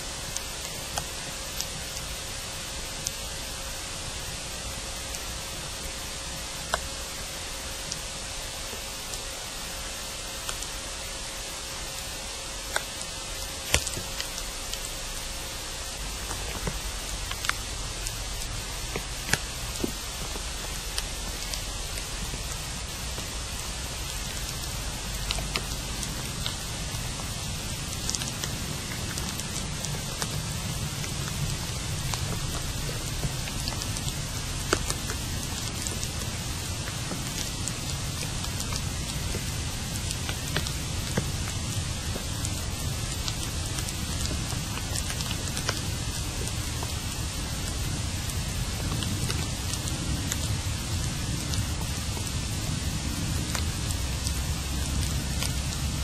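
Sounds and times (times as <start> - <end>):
steady hiss: 0.0 - 56.0
low rumble: 12.5 - 56.0.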